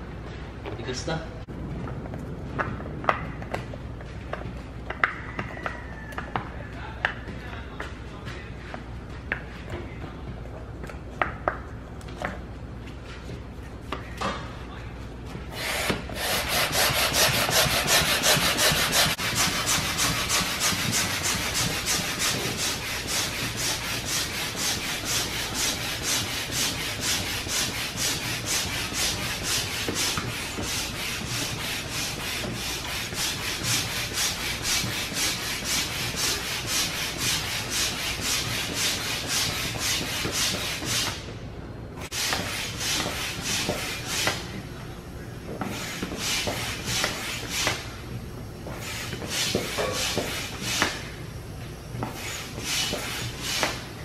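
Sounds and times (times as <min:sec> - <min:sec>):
hand air pump strokes: 0:15.5 - 0:41.2.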